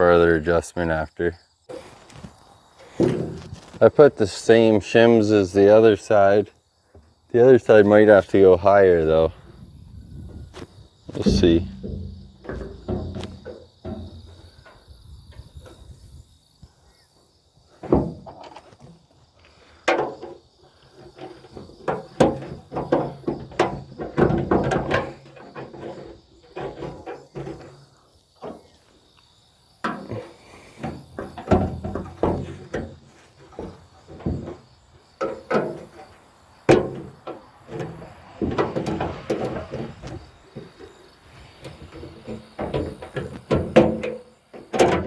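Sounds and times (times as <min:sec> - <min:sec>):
clicks and clanks on steel fender: 0:10.6 - 0:15.8, 0:19.7 - 0:28.8, 0:29.8 - 0:45.0.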